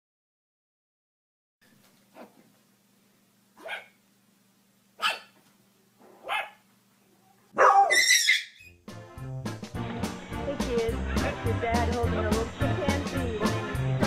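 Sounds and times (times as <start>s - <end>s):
dog barking: 3.6s - 4.0s, 5.0s - 5.4s, 6.2s - 6.6s, 7.5s - 8.6s
music: 8.7s - 14.0s.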